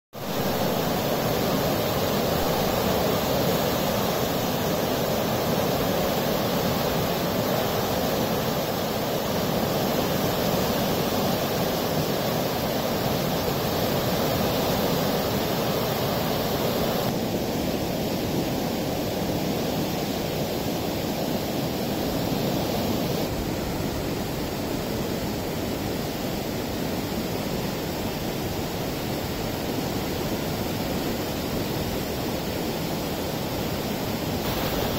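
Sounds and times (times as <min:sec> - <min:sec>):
flood water rushing: 0:00.2 - 0:17.8, 0:27.6 - 0:34.9.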